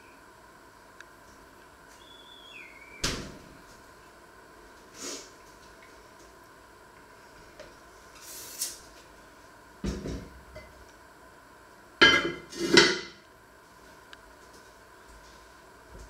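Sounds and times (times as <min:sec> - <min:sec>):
cast-iron lid clanking: 0:12.0 - 0:13.2
pot scraping on stovetop: 0:12.4 - 0:13.0.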